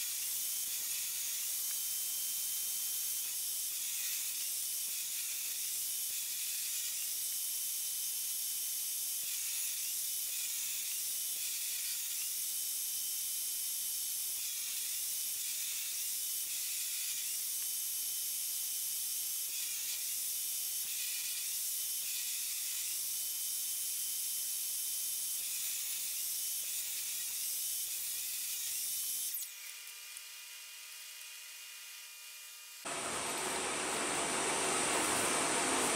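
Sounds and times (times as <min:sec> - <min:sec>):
faint steady hum: 0:32.9 - 0:35.9
table saw whining: 0:32.9 - 0:35.9.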